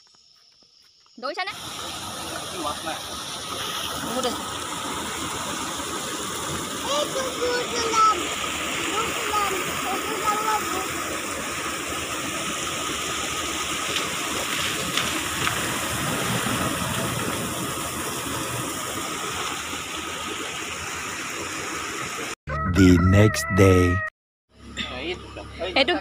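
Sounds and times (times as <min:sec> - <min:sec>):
floodwater rushing: 0:01.6 - 0:22.4.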